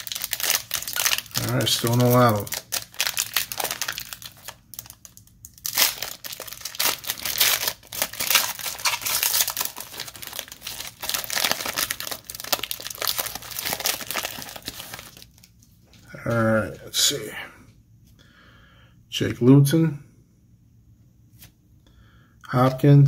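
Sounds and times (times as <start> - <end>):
foil wrapper tearing and crinkling: 0.0 - 15.6.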